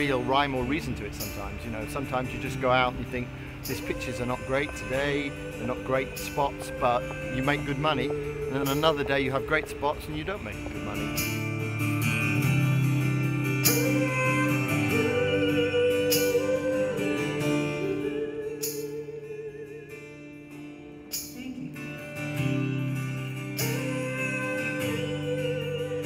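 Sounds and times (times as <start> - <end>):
person singing: 0.0 - 11.3, 13.7 - 20.1, 23.6 - 26.0
guitar: 0.0 - 26.0.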